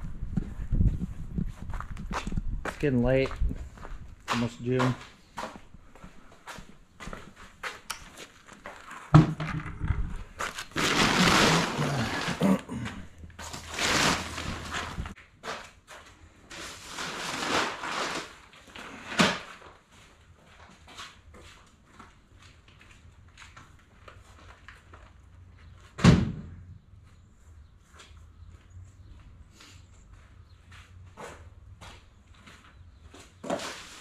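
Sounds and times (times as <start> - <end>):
light footsteps: 0.0 - 9.0, 26.9 - 33.5
plastic tarp rustling: 10.3 - 12.7, 13.4 - 15.6, 16.5 - 19.6
loud thump: 26.0 - 26.6.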